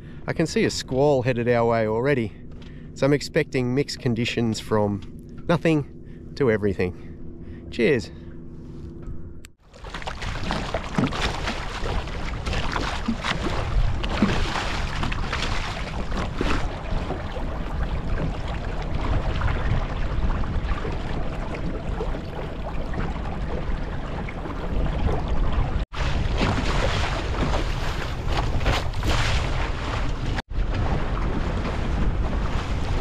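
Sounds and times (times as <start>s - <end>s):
water splashing along hull: 9.6s - 33.0s.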